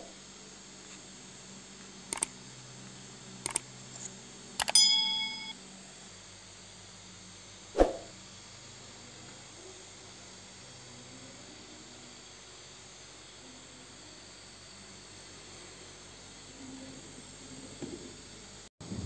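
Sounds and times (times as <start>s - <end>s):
mouse clicks: 2.1s - 2.3s, 3.4s - 3.6s
bell ding: 4.6s - 5.6s
short whoosh: 7.8s - 8.1s.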